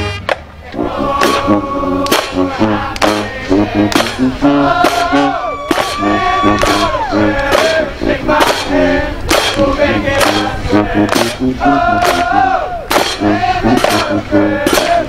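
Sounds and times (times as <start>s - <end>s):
brass and woodwind chords: 0.0s - 15.0s
drumline and cymbal hits: 0.0s - 15.0s.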